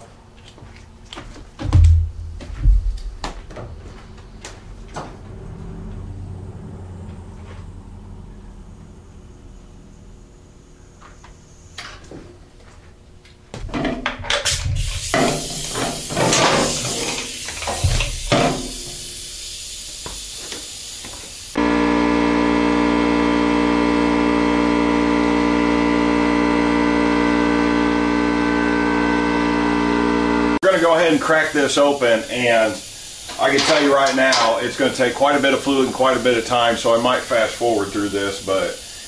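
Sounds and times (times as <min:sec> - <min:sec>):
loud steady hum: 0:01.6 - 0:12.6, 0:21.5 - 0:39.0.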